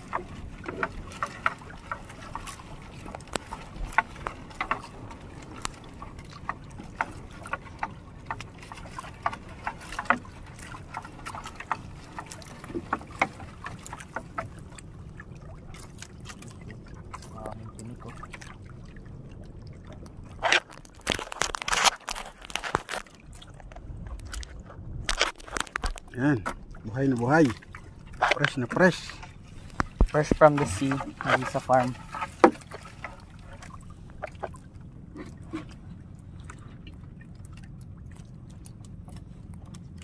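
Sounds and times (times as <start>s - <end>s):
water wash: 0.0s - 40.0s
wind: 0.0s - 40.0s
net knocking against boat hull: 29.7s - 33.0s.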